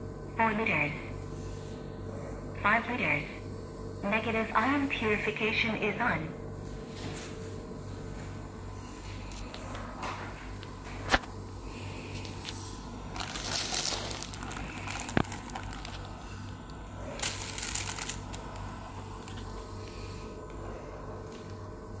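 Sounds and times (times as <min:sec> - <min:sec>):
compressor humming: 0:00.0 - 0:22.0
plastic packaging crinkling: 0:12.3 - 0:19.6.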